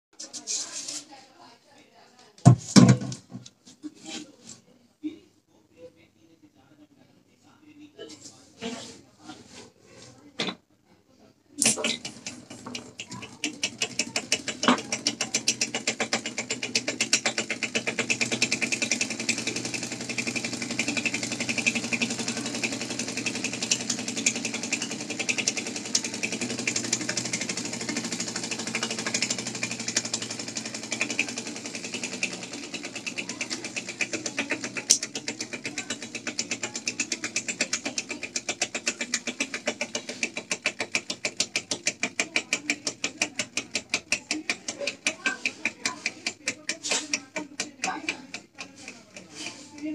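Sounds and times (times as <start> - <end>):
air engine clicking puffs: 11.6 - 49.9.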